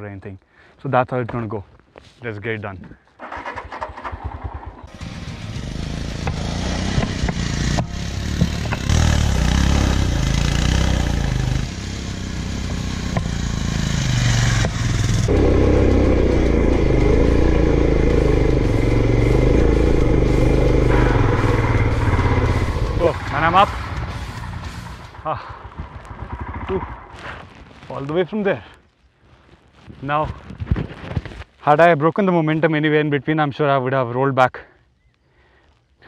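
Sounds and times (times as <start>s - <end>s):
motorcycle engine revving: 3.2s - 27.6s
rushing noise: 4.9s - 27.5s.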